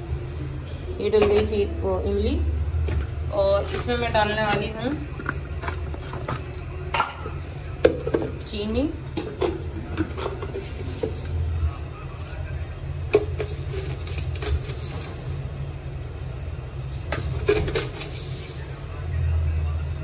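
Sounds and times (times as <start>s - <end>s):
steady low rumble: 0.0s - 9.9s
utensils clinking against pot: 3.6s - 8.5s, 9.1s - 11.3s.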